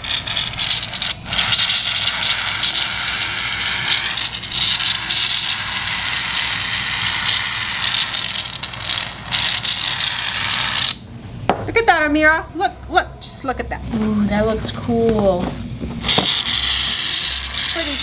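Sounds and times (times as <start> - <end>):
aerosol cans spraying: 16.0 - 18.0.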